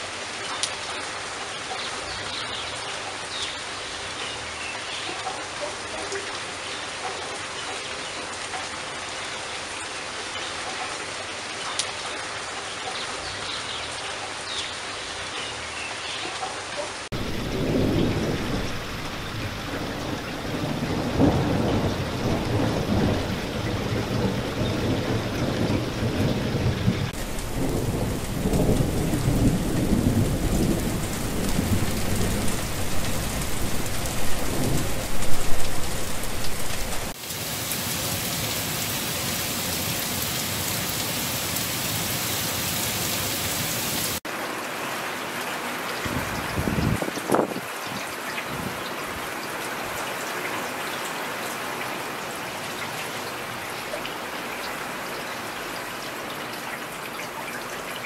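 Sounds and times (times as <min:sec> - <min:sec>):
heavy rain falling: 0:00.0 - 0:58.0
thunder rolling: 0:17.1 - 0:37.2.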